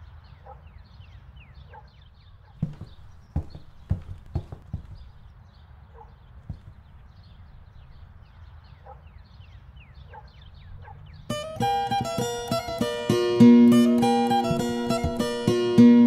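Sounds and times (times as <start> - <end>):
single knock: 2.6 - 5.2, 6.5 - 6.9, 13.9 - 15.8
acoustic guitar music: 11.3 - 16.0.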